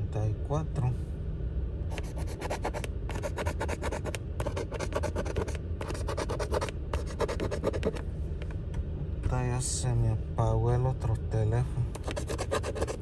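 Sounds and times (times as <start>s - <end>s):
coin scratching lottery ticket: 1.9s - 8.0s, 12.0s - 13.0s.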